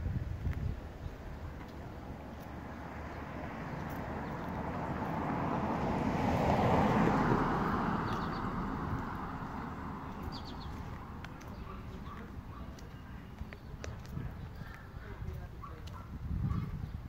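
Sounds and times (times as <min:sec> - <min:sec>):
vehicle passing by: 0:01.9 - 0:12.6.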